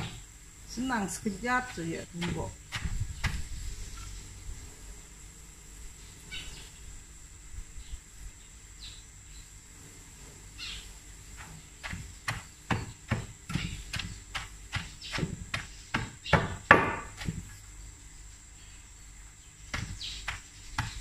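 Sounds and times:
pestle pounding leaves: 0.0 - 0.2, 1.5 - 3.7, 11.4 - 17.5, 19.6 - 21.0
leaves rustling in a mortar: 0.0 - 6.8, 9.5 - 21.0.

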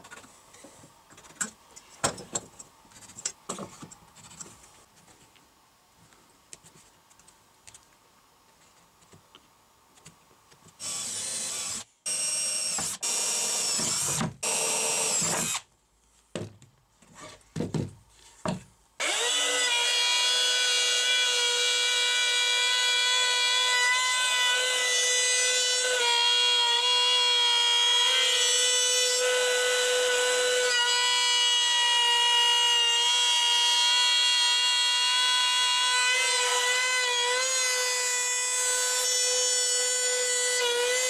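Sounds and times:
power drill boring holes: 10.8 - 15.6, 19.0 - 41.0
router high whine: 10.8 - 15.6.

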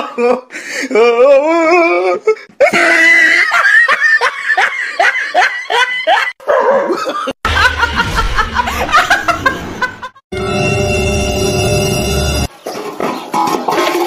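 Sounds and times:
person laughing: 0.0 - 10.2
woman laughing hard: 2.6 - 10.2
music: 10.3 - 12.5.

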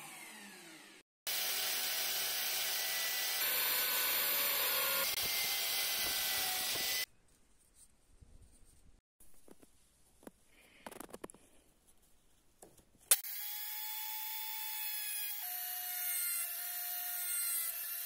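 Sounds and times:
drill press boring wood: 0.0 - 7.1.

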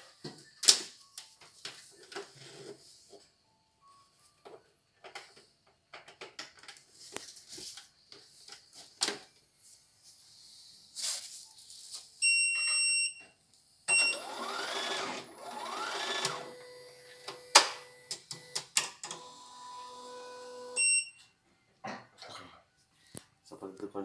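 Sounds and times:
machine beeping: 13.9 - 21.2
embroidery machine motor whirring: 14.1 - 18.1.

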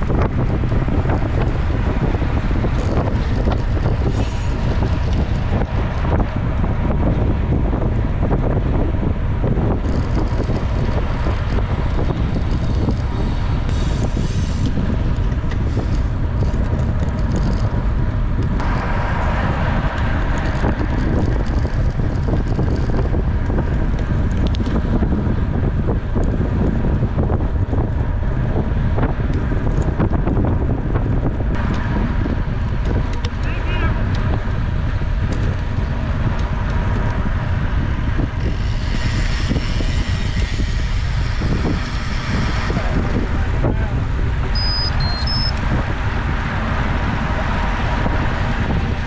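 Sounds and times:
wind buffeting microphone: 0.0 - 49.0
tyres hissing on road: 3.8 - 5.4, 13.3 - 14.9, 38.4 - 44.4.

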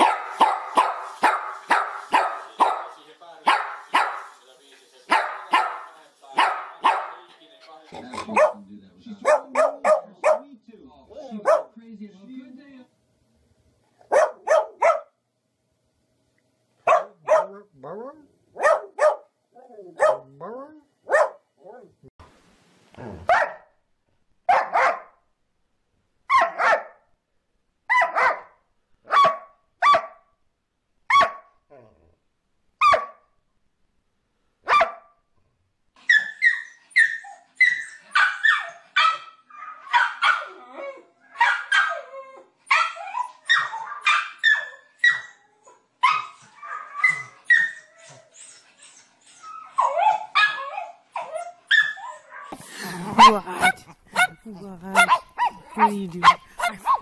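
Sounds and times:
small dog barking rapidly: 0.0 - 2.9, 3.5 - 4.3, 5.1 - 7.1, 8.2 - 8.6, 9.2 - 10.4, 11.4 - 11.7, 14.1 - 15.1, 16.9 - 17.6, 18.6 - 19.3, 20.0 - 20.3, 21.1 - 21.4, 23.3 - 23.6, 24.5 - 25.1, 26.3 - 27.0, 27.9 - 28.5, 29.1 - 30.2, 31.1 - 31.5, 32.8 - 33.2, 34.7 - 35.1, 38.2 - 40.5, 41.4 - 42.0, 53.1 - 57.0
dog barking: 0.0 - 4.3, 5.1 - 7.2, 8.2 - 8.6, 9.2 - 10.5, 11.2 - 11.8, 14.0 - 15.2, 16.8 - 17.7, 18.5 - 19.3, 20.0 - 20.4, 21.1 - 21.5, 23.2 - 23.7, 24.5 - 25.2, 26.3 - 27.0, 27.9 - 30.2, 31.1 - 31.5, 32.8 - 33.3, 34.6 - 35.2, 38.1 - 40.6, 41.3 - 42.1, 42.7 - 45.3, 51.7 - 57.0.

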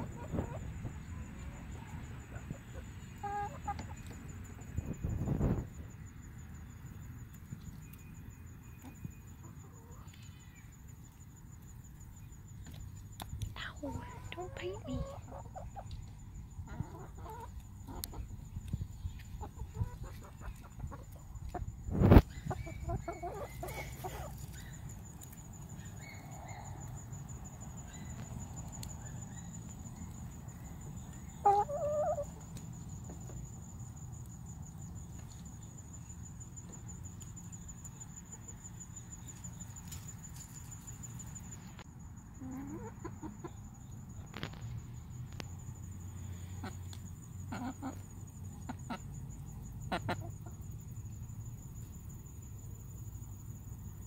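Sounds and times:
hens clucking: 0.0 - 5.6, 13.9 - 24.7, 30.8 - 33.4, 42.4 - 43.6, 46.6 - 49.2, 49.8 - 50.7.

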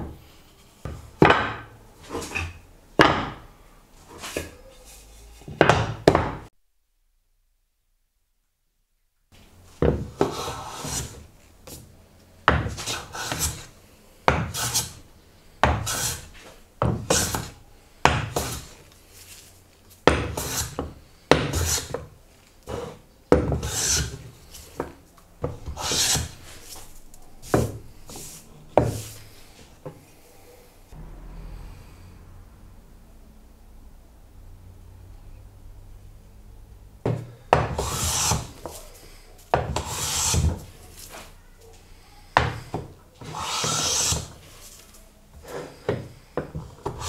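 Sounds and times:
hand plane shaving wood: 20.4 - 20.8, 23.6 - 24.2, 25.7 - 26.4, 37.8 - 38.8, 39.8 - 40.6, 43.2 - 44.3.

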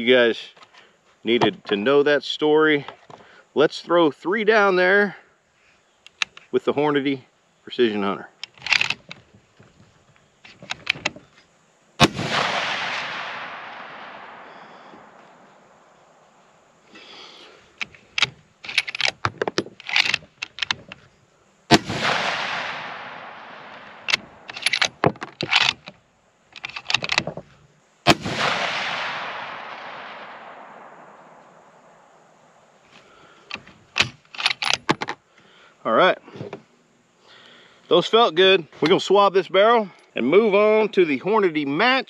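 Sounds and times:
rifle bolt clicks: 8.4 - 9.2, 17.8 - 21.0, 21.7 - 26.0, 26.6 - 27.4, 33.5 - 35.1
rifle shots: 12.0 - 15.9, 21.7 - 25.8, 28.0 - 32.1.

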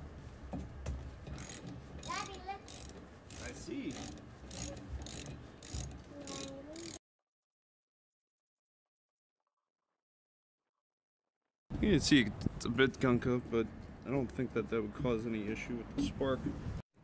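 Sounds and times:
socket ratchet clicking: 1.4 - 7.0.

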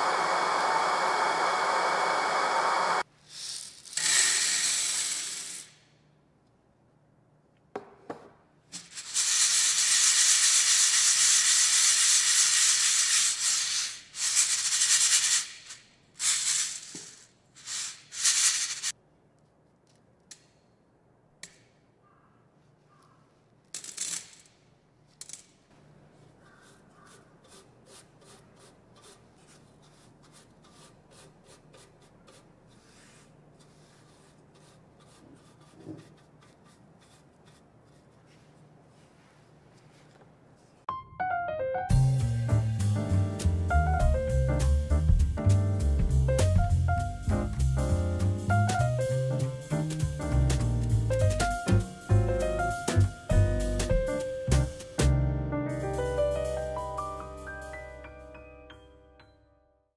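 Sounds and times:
brush sweeping grille: 26.0 - 40.8.

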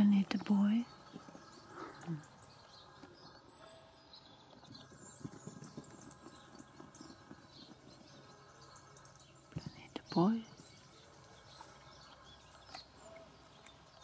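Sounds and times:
faint bird chirps: 0.0 - 14.0
kittens tapping and rustling on grass: 4.4 - 14.0.

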